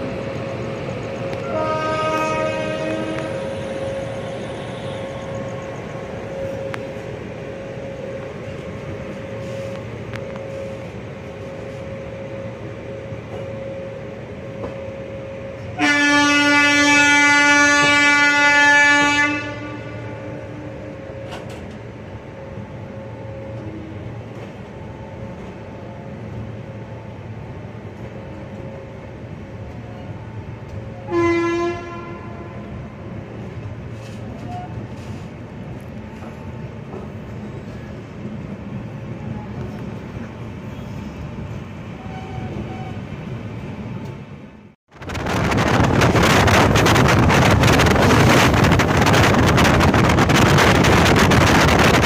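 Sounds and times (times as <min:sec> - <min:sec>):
train running noise: 0:00.0 - 0:52.0
locomotive air horn: 0:01.4 - 0:05.3, 0:15.6 - 0:20.8, 0:31.0 - 0:32.7.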